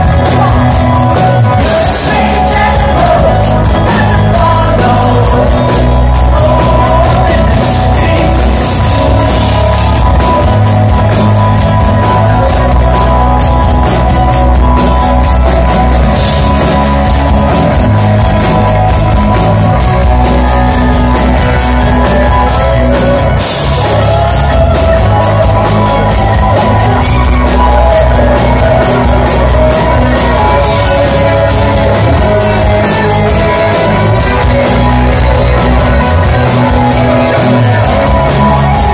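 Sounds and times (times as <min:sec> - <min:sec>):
bass guitar: 0:00.0 - 0:38.9
drums keeping a steady beat: 0:00.0 - 0:38.9
electric guitar: 0:00.0 - 0:38.9
male lead singer: 0:00.0 - 0:38.9.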